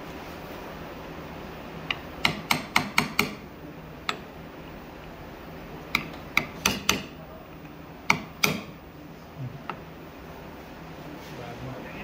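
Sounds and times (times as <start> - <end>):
hammer tapping on metal: 1.9 - 3.4, 5.9 - 7.2, 8.1 - 8.8.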